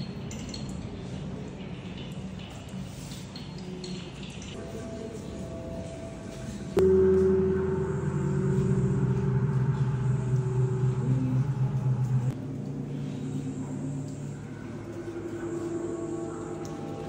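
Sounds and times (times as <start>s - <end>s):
low ambient drone music: 4.6s - 17.0s.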